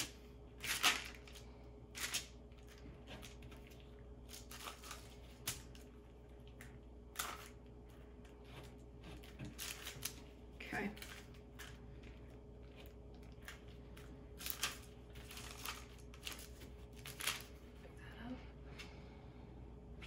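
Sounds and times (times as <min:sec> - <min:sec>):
spatula scraping on paper: 0:08.0 - 0:10.2.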